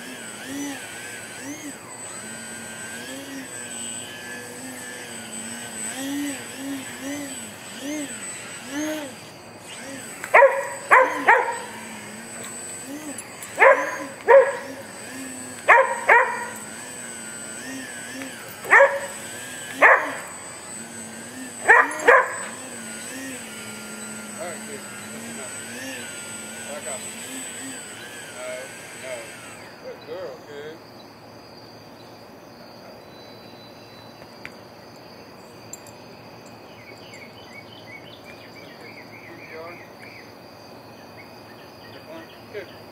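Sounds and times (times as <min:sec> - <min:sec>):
model plane motor humming: 0:00.0 - 0:30.8
crickets chirring: 0:00.1 - 0:42.9
dog barking sharply: 0:10.3 - 0:11.7, 0:13.6 - 0:14.6, 0:15.7 - 0:16.5, 0:18.7 - 0:19.1, 0:19.8 - 0:20.2, 0:21.6 - 0:22.5.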